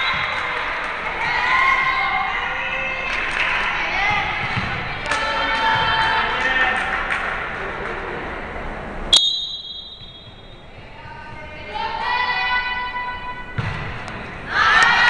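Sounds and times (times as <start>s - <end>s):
people shouting in a hall: 0.0s - 7.0s, 14.4s - 15.0s
referee whistle: 9.1s - 10.6s.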